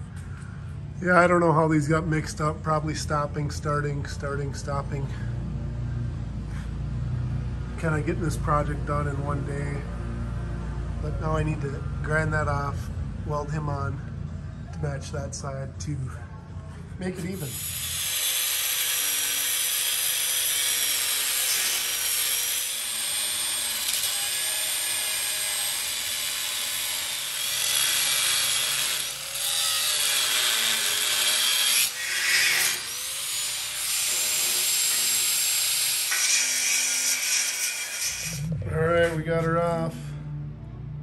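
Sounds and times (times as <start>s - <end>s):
angle grinder grinding metal: 17.2s - 39.2s.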